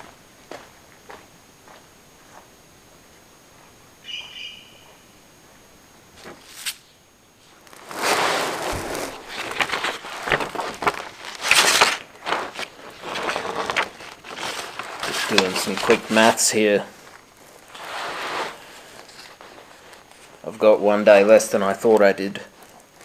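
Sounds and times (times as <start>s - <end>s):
bird call: 4.0s - 5.0s
paper map crinkling and rustling: 7.5s - 23.0s.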